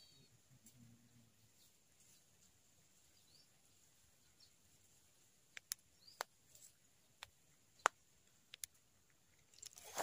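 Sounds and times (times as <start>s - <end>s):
faint steady high hiss: 0.0s - 10.0s
bird chirps: 3.0s - 4.6s, 5.8s - 8.0s
sharp clicks: 5.5s - 6.3s, 7.2s - 8.8s.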